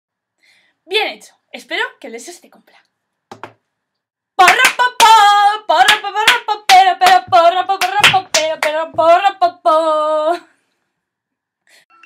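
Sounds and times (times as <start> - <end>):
hands clapping: 4.4 - 5.2, 5.8 - 8.8.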